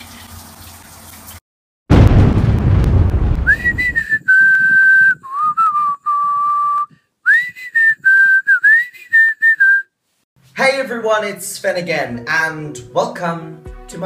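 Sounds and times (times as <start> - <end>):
person whistling a tune: 3.5 - 9.9.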